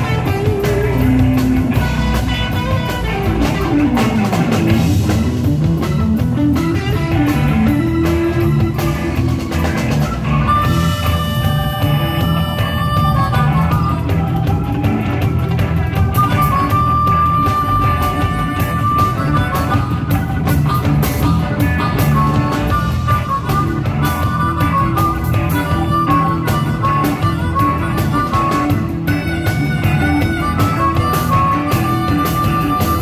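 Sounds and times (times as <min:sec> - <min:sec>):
held high lead notes: 0:00.0 - 0:33.0
live blues-rock band playing: 0:00.0 - 0:33.0.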